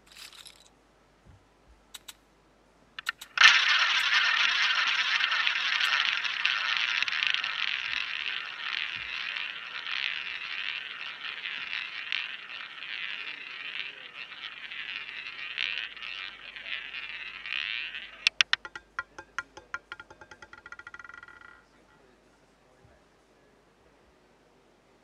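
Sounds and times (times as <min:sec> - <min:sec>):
roulette ball rolling whir: 0:03.0 - 0:21.9.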